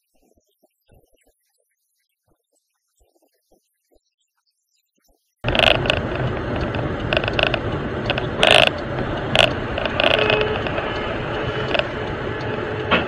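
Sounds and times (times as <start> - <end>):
car cabin road rumble: 5.4 - 13.0
rattling clicks: 5.4 - 13.0.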